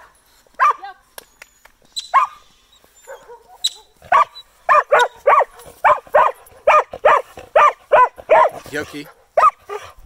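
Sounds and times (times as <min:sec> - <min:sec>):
dog barking: 0:00.6 - 0:00.8, 0:02.2 - 0:02.4, 0:03.1 - 0:08.7, 0:09.4 - 0:10.0.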